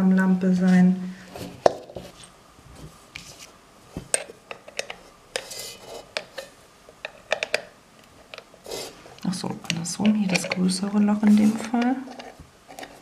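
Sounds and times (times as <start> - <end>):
metal lamp parts clicking: 6.2 - 7.7, 9.6 - 10.7.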